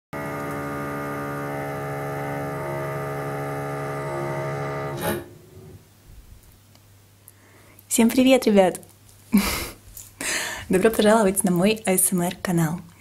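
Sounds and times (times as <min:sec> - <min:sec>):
intro music chord: 0:00.2 - 0:05.8.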